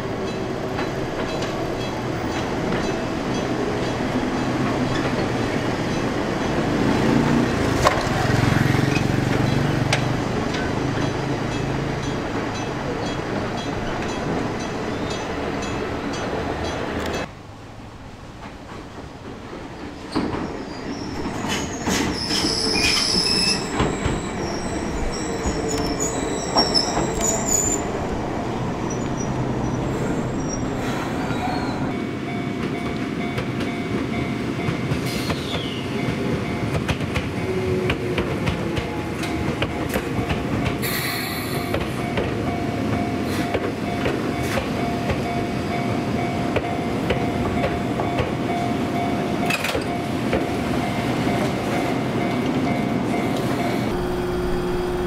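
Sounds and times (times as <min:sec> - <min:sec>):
train wheels rumbling on rails: 0:00.0 - 0:55.0
steady train tone: 0:10.3 - 0:55.0
high-pitched wheel squeal: 0:20.6 - 0:27.9.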